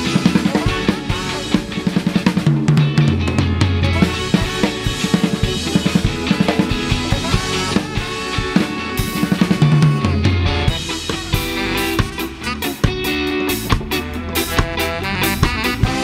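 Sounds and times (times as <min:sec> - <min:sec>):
ska band playing: 0:00.0 - 0:16.0
snare and bass drum hits: 0:07.1 - 0:16.0.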